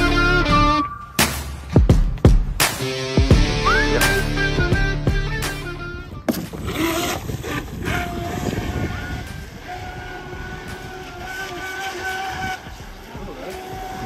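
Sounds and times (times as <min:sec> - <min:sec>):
electric boat motor whining: 0:05.6 - 0:14.0.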